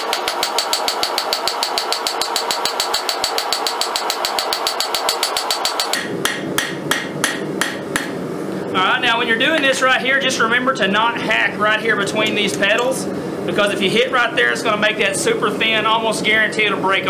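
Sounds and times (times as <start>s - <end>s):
hammer striking steel on anvil: 0.0s - 8.2s.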